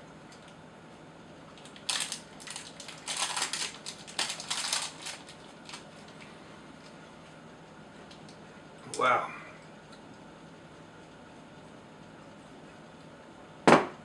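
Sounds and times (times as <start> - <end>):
foil wrapper crinkling: 1.5 - 7.0.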